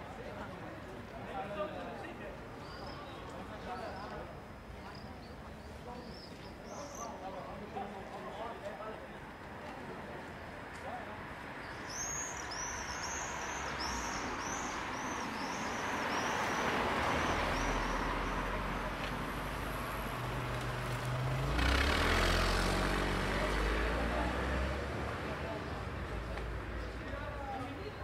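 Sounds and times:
traffic hum: 0.0 - 28.0
cars passing: 11.1 - 27.4.

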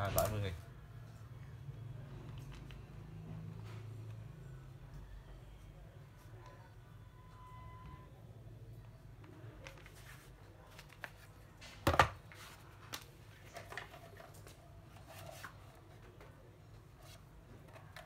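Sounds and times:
plastic charger knock and clatter: 11.8 - 12.2.

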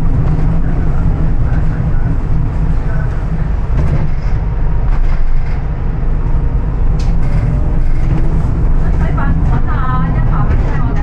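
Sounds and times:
bus engine and road rumble: 0.0 - 11.0.

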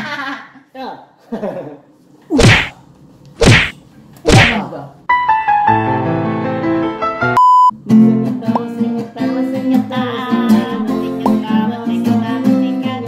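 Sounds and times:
comic slap sound effects: 2.3 - 2.8, 3.4 - 4.6.

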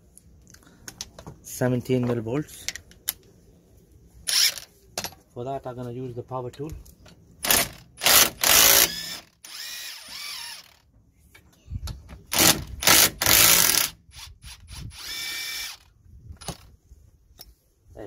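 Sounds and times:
impact wrench whining spin: 4.3 - 4.6, 7.4 - 10.8, 12.3 - 15.9
impact wrench bursts: 7.4 - 10.8, 12.3 - 15.9.

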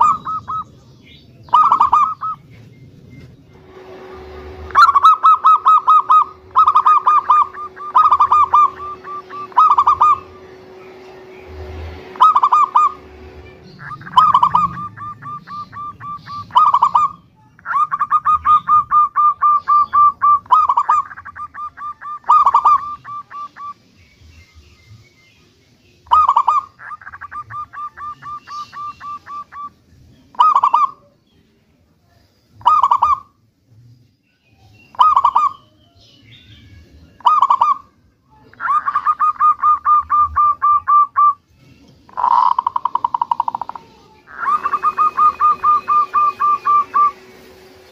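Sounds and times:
dove cooing: 0.0 - 0.8, 1.5 - 2.4, 3.7 - 23.8, 26.1 - 29.7, 30.3 - 31.1, 32.6 - 33.3, 35.0 - 35.6, 37.2 - 37.9, 38.5 - 41.4, 42.1 - 47.6.

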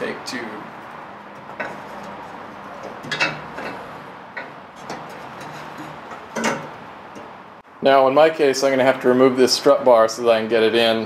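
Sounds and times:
metal tube knocking and scraping: 1.3 - 7.4.

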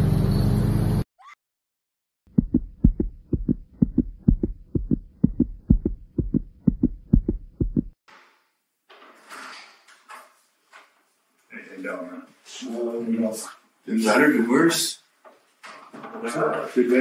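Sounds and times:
heartbeat thumps: 2.3 - 8.0.

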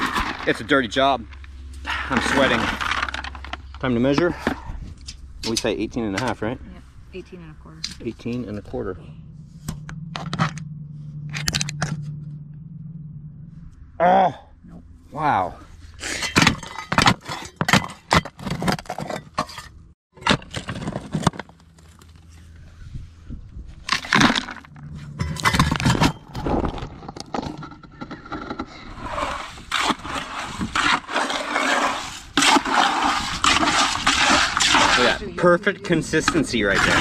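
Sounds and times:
wet concrete being mixed: 0.0 - 1.2, 1.9 - 4.7, 28.9 - 37.0
knocks and scrapes: 0.0 - 7.2, 7.8 - 13.8, 15.7 - 23.0, 23.8 - 37.0.

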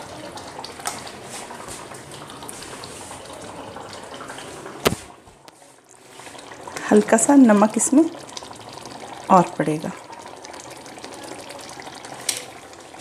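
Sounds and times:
water running from tap: 0.0 - 5.2, 5.9 - 13.0.

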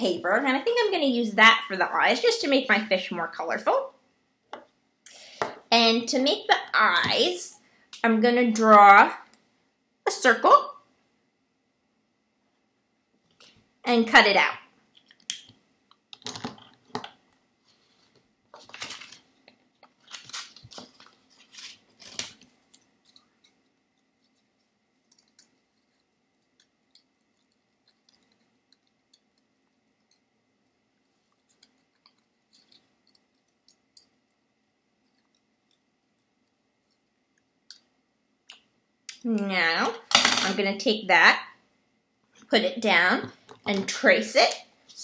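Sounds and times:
paper rustling: 17.7 - 24.7.

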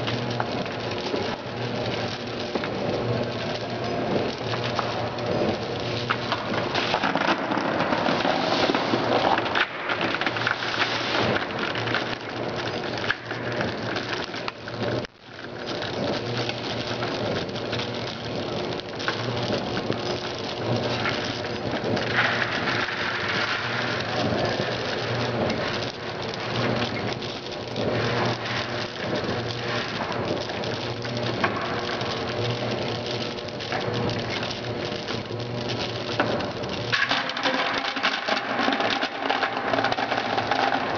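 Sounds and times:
gum pieces pattering in metal hopper: 0.0 - 40.9.

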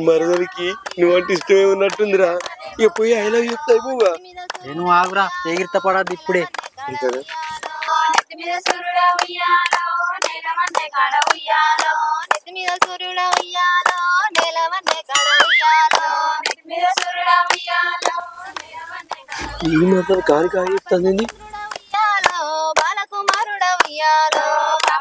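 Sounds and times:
woman singing: 0.2 - 20.3, 21.3 - 25.0
steady percussive beat: 15.1 - 16.0, 19.4 - 21.8.

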